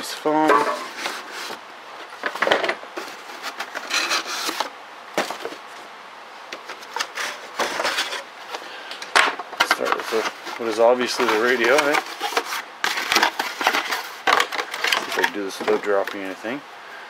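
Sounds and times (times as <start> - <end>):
cardboard scraping and rustling: 0.0 - 5.9, 6.6 - 8.6, 9.3 - 16.5.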